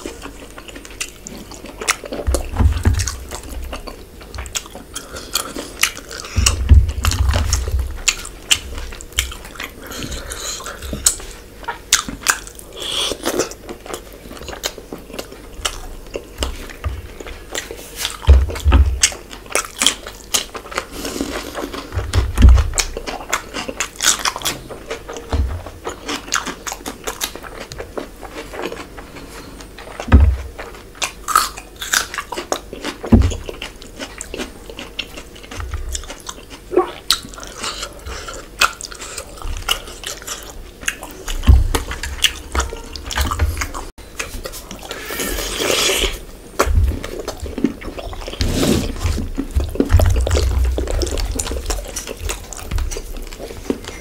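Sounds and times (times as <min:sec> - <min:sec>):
wet chewing and lip smacking: 0:00.0 - 0:54.0
dull thumps: 0:06.3 - 0:08.1.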